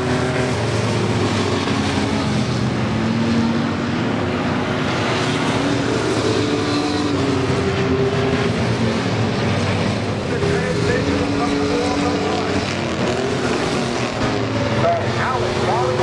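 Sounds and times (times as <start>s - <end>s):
racing truck engines: 0.0s - 16.0s.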